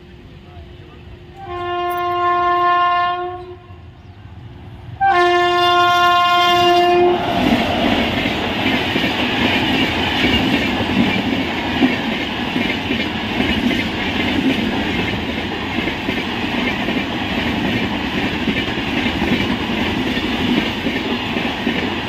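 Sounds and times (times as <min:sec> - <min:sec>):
train passing at speed: 0:00.0 - 0:22.0
locomotive air horn blasts: 0:01.4 - 0:03.8, 0:05.0 - 0:07.2.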